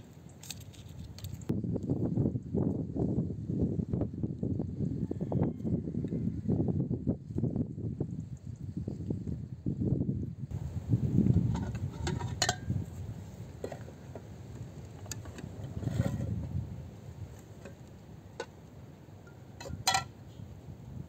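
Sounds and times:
low wind rumble: 0.0s - 21.0s
metal pot lid clinking: 11.5s - 12.7s, 19.6s - 20.1s.

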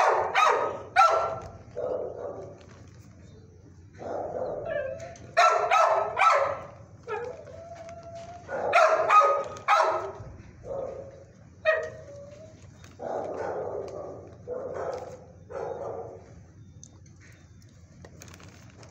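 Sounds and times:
dog barking: 0.0s - 2.7s, 4.0s - 7.4s, 8.4s - 12.3s, 13.0s - 16.3s
dog howling: 4.1s - 10.2s, 10.8s - 15.0s.

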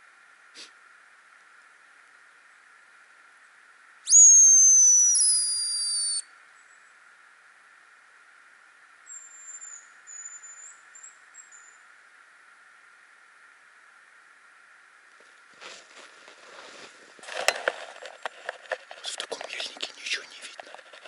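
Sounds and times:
bird whistling faintly: 4.0s - 6.9s
decoy whistle blown: 4.1s - 6.2s.

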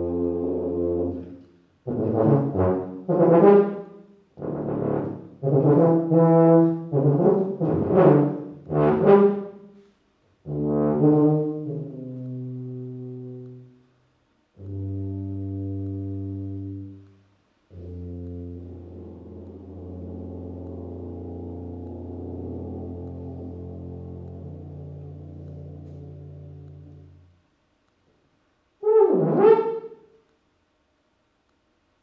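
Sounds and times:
solo tuba playing: 0.0s - 13.9s, 14.5s - 27.4s, 28.8s - 30.3s.

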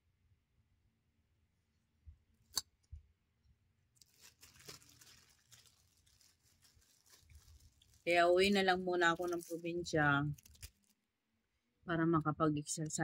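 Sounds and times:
plastic bag rustling and crinkling: 4.0s - 11.0s.

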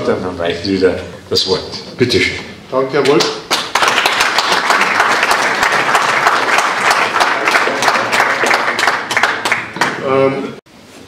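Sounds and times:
audience applauding: 3.1s - 10.1s.

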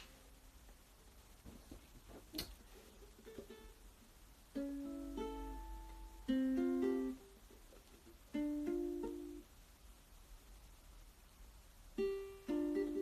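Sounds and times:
ukulele strummed slowly: 2.6s - 9.5s, 12.0s - 13.0s.

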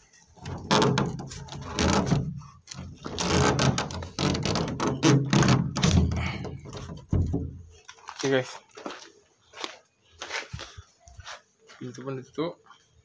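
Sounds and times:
wooden door rattling on metal frame: 0.4s - 2.4s, 3.0s - 7.7s.

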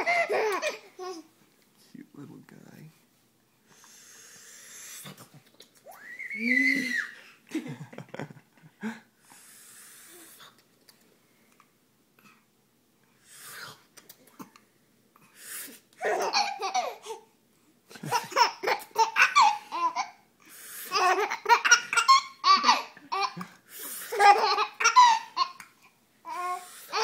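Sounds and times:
baby laughing: 0.0s - 1.3s, 16.0s - 17.3s, 17.9s - 20.2s, 20.9s - 23.5s, 24.1s - 25.7s, 26.3s - 27.0s.

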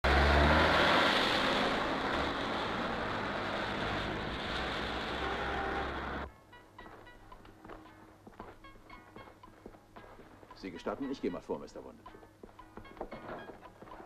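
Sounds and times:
bus engine passing: 0.0s - 6.3s
city street traffic: 0.0s - 6.3s.

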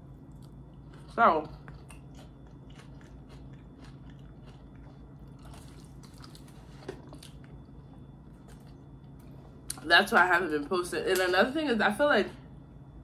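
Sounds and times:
low steady hum: 0.0s - 13.0s
person chewing food: 0.1s - 9.8s.

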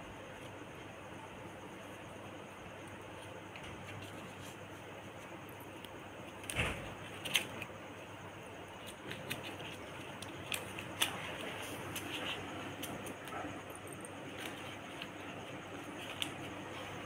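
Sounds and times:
paper banknotes crinkling: 3.1s - 7.8s, 8.7s - 17.0s.

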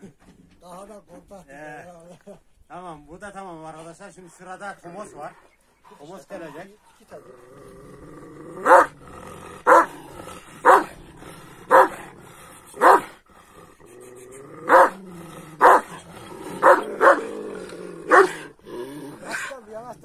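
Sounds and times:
large dog barking: 8.5s - 9.0s, 9.6s - 12.2s, 12.8s - 13.2s, 14.6s - 18.6s.

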